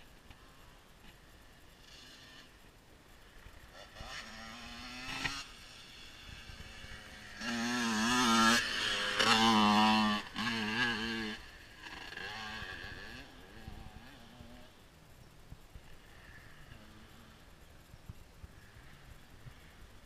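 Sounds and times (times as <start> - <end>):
dirt bike engine passing by: 1.4 - 14.9, 15.8 - 17.9.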